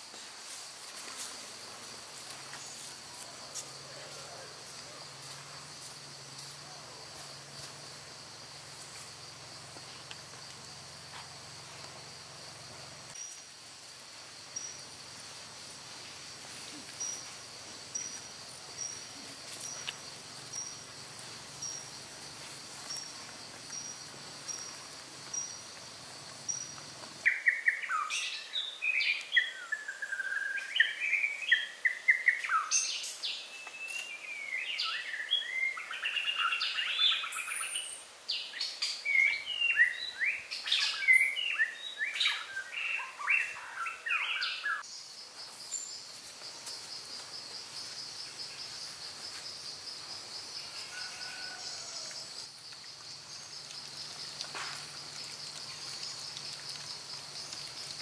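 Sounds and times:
insect drone: 0.0s - 58.0s
bird singing: 26.4s - 46.1s.

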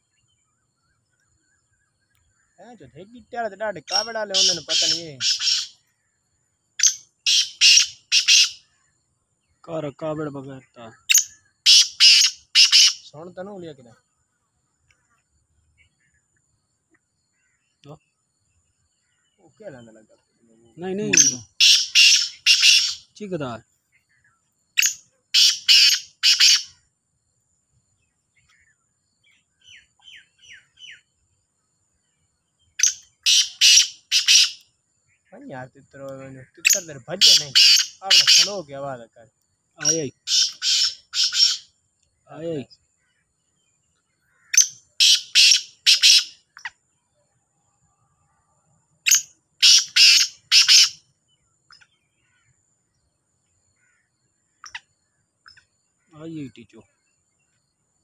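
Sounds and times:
francolin harsh grating call: 3.8s - 5.8s, 6.8s - 8.8s, 10.6s - 13.6s, 20.7s - 23.4s, 24.8s - 26.8s, 32.8s - 34.6s, 36.4s - 38.9s, 39.8s - 41.7s, 44.3s - 46.6s, 49.0s - 51.0s.

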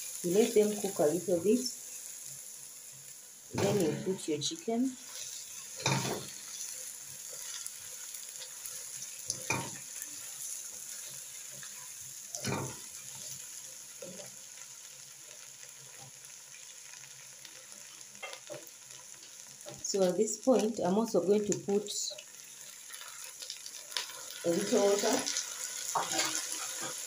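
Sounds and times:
spatula stirring strokes: 0.0s - 16.2s, 22.2s - 27.0s
chicken sizzling in oil: 0.0s - 27.0s.

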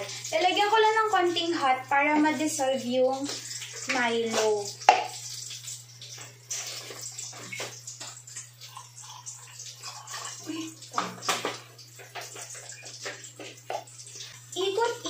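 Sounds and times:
hot water pouring into mug: 3.2s - 15.0s.

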